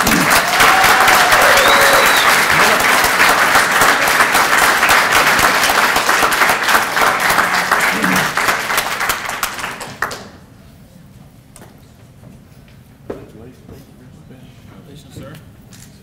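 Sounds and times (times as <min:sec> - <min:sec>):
audience applauding: 0:00.0 - 0:10.3.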